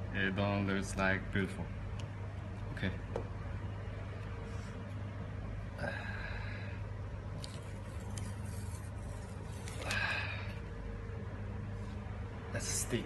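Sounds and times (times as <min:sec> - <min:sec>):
steady low hum: 0:00.0 - 0:13.0
paper rustling: 0:07.4 - 0:10.1.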